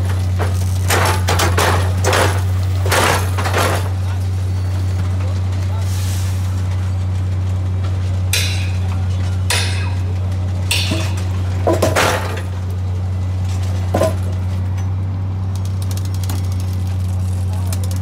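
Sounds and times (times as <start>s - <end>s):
metallic clinks and clanks: 10.7s - 12.5s.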